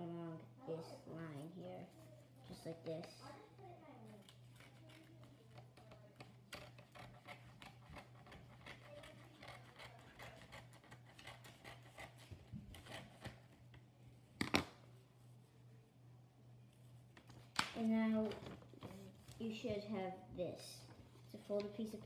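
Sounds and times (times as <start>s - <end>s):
scissors snipping paper: 4.2s - 13.4s.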